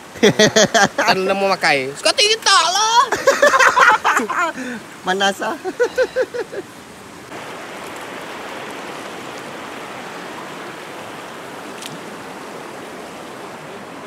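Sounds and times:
river flowing over rapids: 0.9 - 14.0
person's voice: 1.0 - 3.2.

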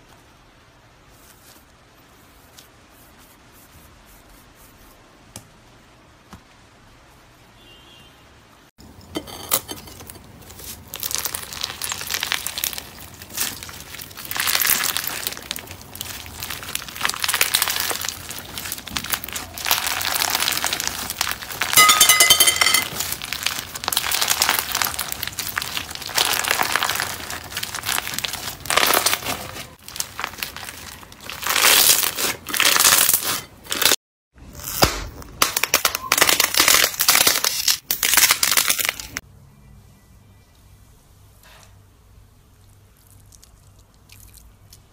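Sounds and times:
slime crackling and popping: 10.4 - 34.0, 34.6 - 39.2.

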